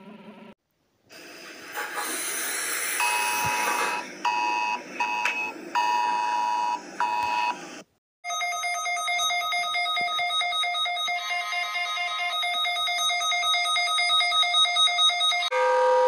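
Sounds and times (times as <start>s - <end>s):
high steady alarm tones: 3.0s - 7.6s, 8.3s - 16.0s
fast alarm beeping: 8.3s - 16.0s.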